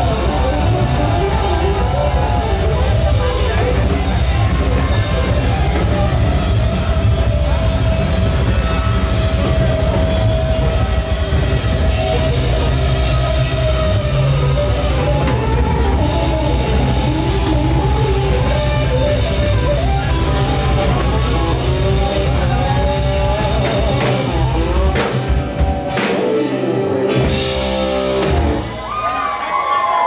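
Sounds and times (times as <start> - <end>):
live rock band playing: 0.0 - 30.0.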